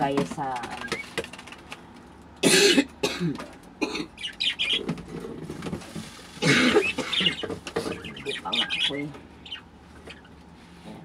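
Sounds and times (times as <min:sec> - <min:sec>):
person coughing: 0:02.4 - 0:04.1, 0:06.4 - 0:07.4.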